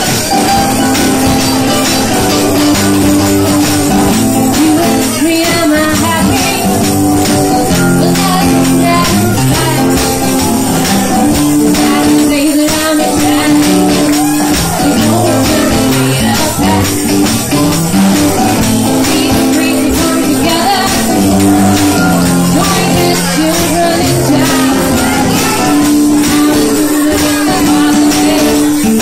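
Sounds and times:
acoustic guitar: 0.0 - 29.0
cajon beating: 0.0 - 29.0
drum kit beat: 0.0 - 29.0
woman singing into a microphone: 4.5 - 17.2, 18.6 - 29.0.

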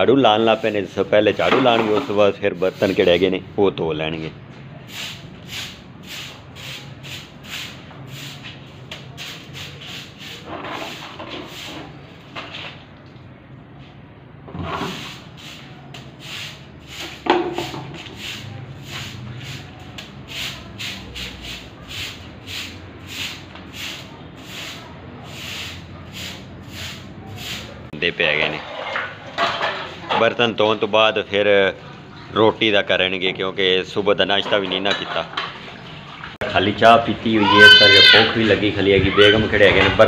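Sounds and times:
broom sweeping brick floor: 0.0 - 3.6, 4.5 - 30.4.

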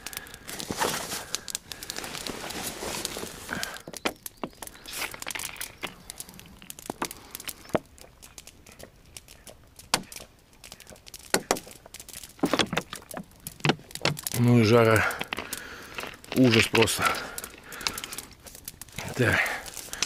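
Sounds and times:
crinkling and rustling: 0.0 - 20.0
sharp clicks and knocks: 6.7 - 14.4.

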